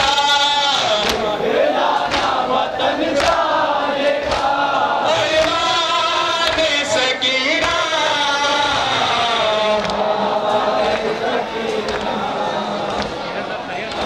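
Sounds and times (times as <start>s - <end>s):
men chanting in unison: 0.0s - 14.0s
hands slapping chests: 1.0s - 1.3s, 2.0s - 2.4s, 3.2s - 3.4s, 4.2s - 4.6s, 9.8s - 10.0s, 11.7s - 12.2s.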